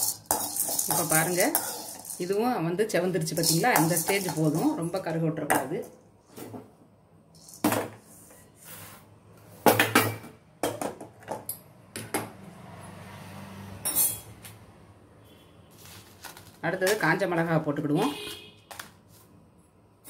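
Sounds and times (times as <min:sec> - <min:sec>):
metal pan knocking and scraping: 0:00.0 - 0:02.4, 0:03.3 - 0:04.9.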